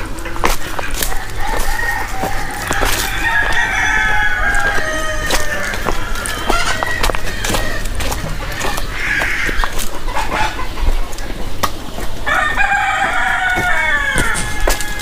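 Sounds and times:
chickens clucking: 0.0s - 15.0s
rooster crowing: 1.1s - 9.6s, 12.3s - 15.0s.

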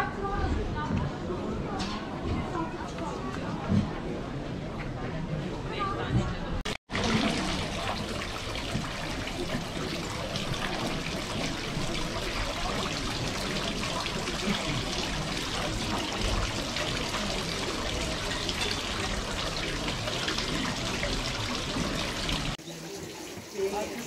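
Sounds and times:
fountain water splashing: 6.9s - 24.0s.

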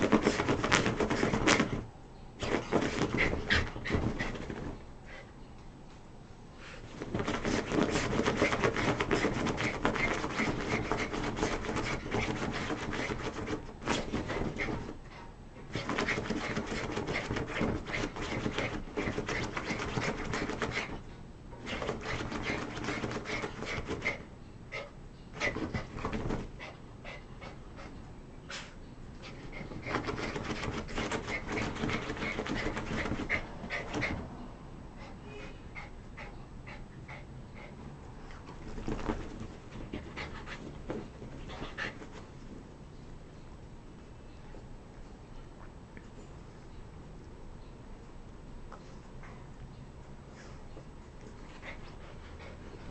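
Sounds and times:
paws scrabbling on bedding: 0.0s - 5.2s, 6.7s - 24.2s, 25.3s - 27.9s, 28.5s - 34.3s, 37.6s - 42.8s
dog breathing: 21.7s - 42.2s, 51.2s - 52.9s.

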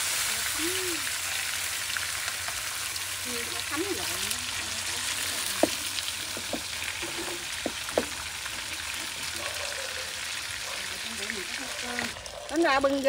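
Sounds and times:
oil popping: 0.0s - 9.4s
fish sizzling in pan: 0.0s - 13.0s.

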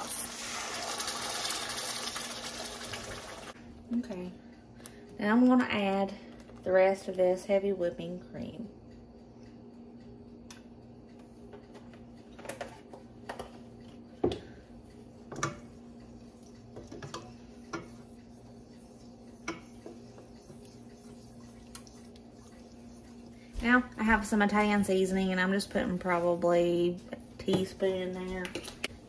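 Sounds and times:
steady low hum: 3.5s - 29.0s.

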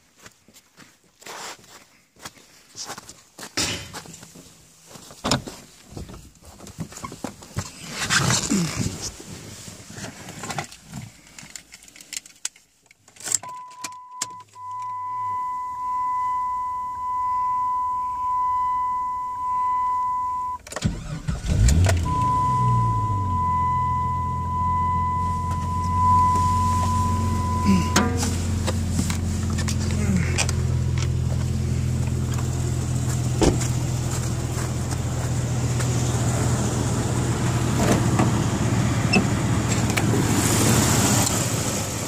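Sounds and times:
car engine cranking and idling: 4.2s - 42.0s
car warning chime beeping: 13.4s - 28.7s.

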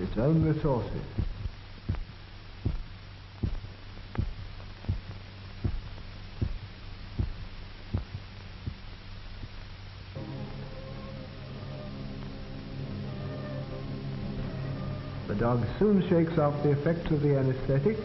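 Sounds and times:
heartbeat strokes: 0.0s - 9.8s
steady low hum: 0.0s - 18.0s.

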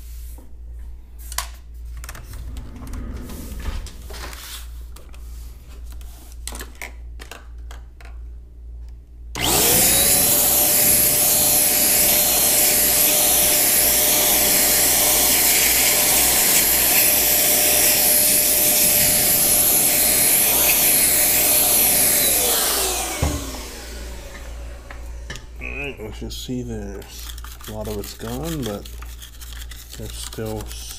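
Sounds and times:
electric blower running: 9.4s - 25.8s.

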